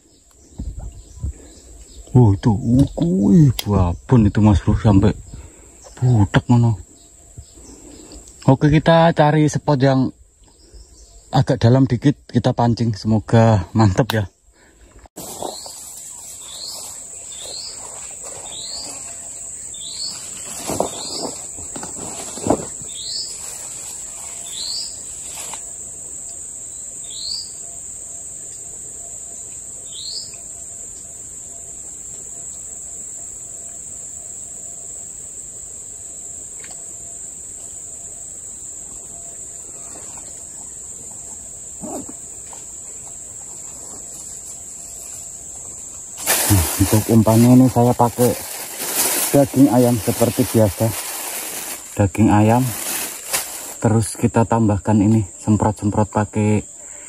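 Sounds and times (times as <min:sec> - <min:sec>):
bird chirping: 0:00.0 - 0:14.8, 0:15.4 - 0:25.6, 0:26.2 - 0:33.0
insect drone: 0:00.0 - 0:57.0.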